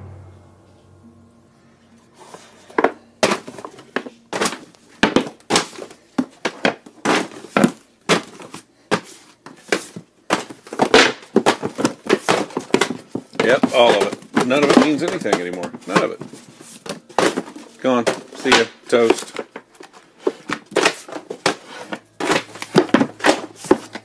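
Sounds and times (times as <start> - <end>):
books pulled off shelf: 2.2 - 6.0
books dropping on floor: 2.2 - 24.0.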